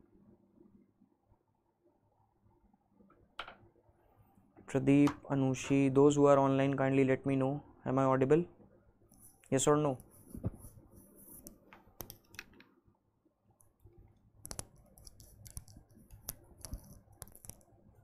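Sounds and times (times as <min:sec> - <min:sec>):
faint clicks and light taps: 0:08.6 - 0:12.8, 0:13.6 - 0:17.8.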